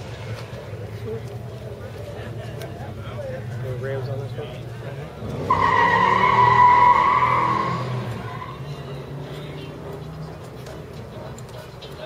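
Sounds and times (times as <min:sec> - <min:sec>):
high-pitched car squeal: 0:05.4 - 0:08.9.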